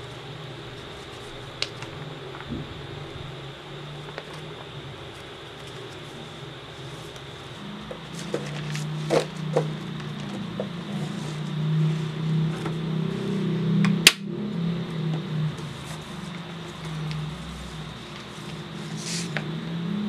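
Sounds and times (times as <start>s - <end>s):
steady low hum: 0.0s - 20.0s
plastic sleeves rustling: 0.7s - 11.5s.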